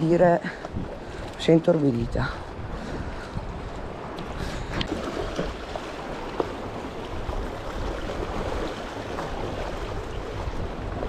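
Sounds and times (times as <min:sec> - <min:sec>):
sea water lapping and splashing: 0:00.0 - 0:11.0
wind rumble on microphone: 0:00.0 - 0:11.0.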